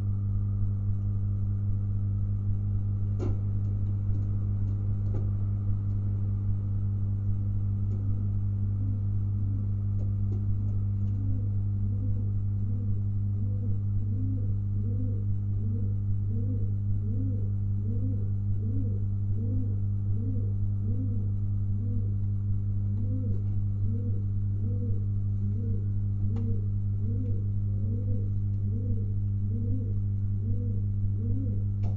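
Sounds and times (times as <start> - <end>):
low electrical hum: 0.0 - 31.9
pigeon cooing: 7.9 - 22.2, 22.8 - 31.8.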